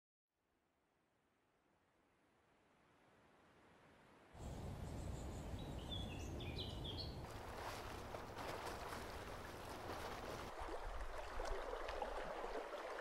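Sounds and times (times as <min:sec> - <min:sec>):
low wind rumble: 0:03.4 - 0:11.4
bird chirping: 0:04.4 - 0:07.2
water lapping against boats: 0:06.3 - 0:13.0.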